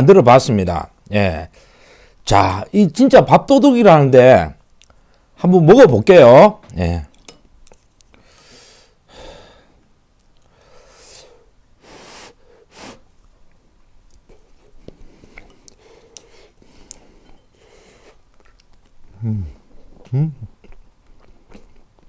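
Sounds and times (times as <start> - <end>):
soft breaths through the nose: 1.6 - 2.2, 8.1 - 13.1, 14.3 - 18.2
faint chewing: 4.6 - 5.3, 7.0 - 8.5, 13.2 - 22.0.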